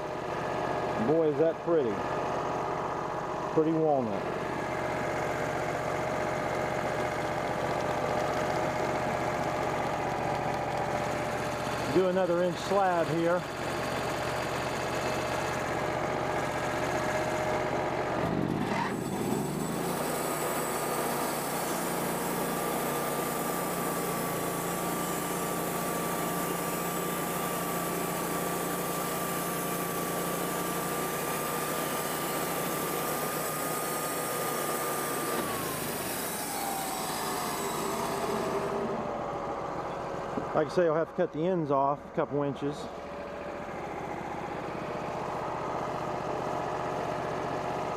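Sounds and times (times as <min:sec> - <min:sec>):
sawmill engine revving: 0:00.0 - 0:47.9
band saw blade cutting log: 0:03.6 - 0:41.0.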